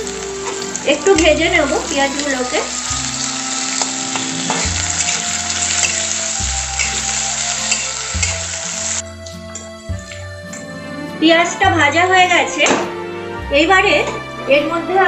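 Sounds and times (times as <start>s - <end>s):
onions sizzling in oil: 0.0s - 9.0s.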